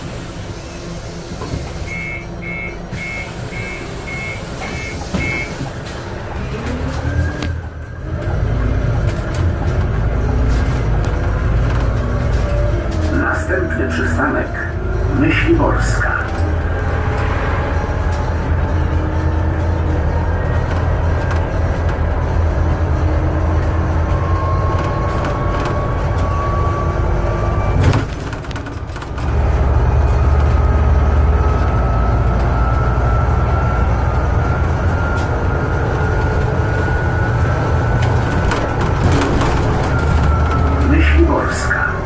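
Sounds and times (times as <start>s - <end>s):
bus engine drone: 0.0s - 42.0s
faint rising whine: 16.0s - 19.6s.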